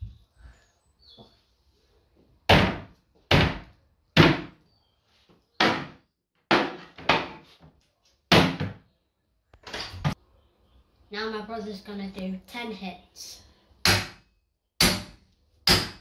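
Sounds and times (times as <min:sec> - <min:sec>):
heavy blows smashing a kitchen: 0:05.6 - 0:07.4, 0:08.3 - 0:08.8.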